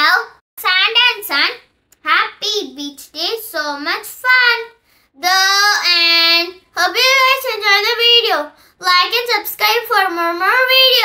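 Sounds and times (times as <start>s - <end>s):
child singing high notes: 3.7s - 11.0s.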